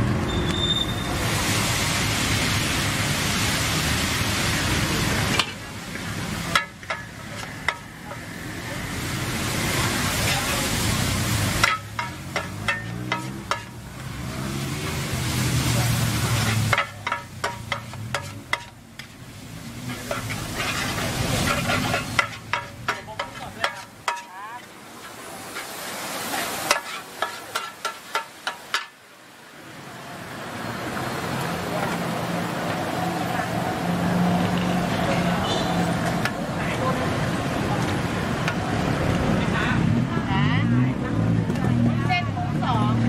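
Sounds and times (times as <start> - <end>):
noodles sizzling: 1.2 - 29.0
metal spatulas clacking on pan: 6.5 - 8.3, 11.6 - 13.8, 16.3 - 19.1, 19.9 - 24.7, 26.7 - 29.0.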